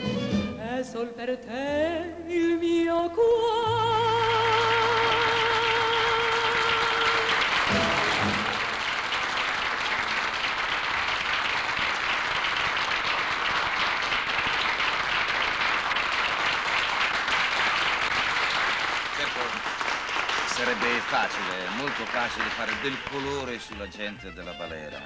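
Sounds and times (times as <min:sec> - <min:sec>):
woman singing with vibrato: 0:00.6 - 0:08.4
audience applauding: 0:04.4 - 0:24.0
dance band playing: 0:06.8 - 0:09.1.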